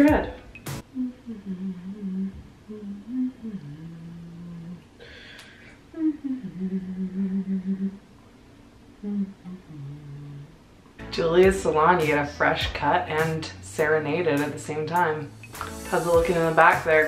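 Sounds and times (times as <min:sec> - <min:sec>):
woman humming: 0:00.8 - 0:05.0, 0:05.9 - 0:08.1, 0:09.0 - 0:10.6.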